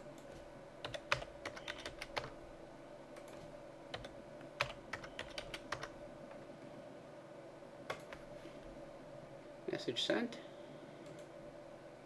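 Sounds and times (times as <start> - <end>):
typing on computer keyboard: 0.8 - 2.3, 3.2 - 5.9.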